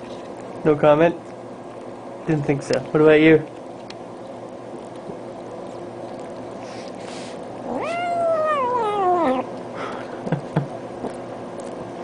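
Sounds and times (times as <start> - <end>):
steady hum: 0.0 - 12.0
cat meowing: 7.6 - 9.5.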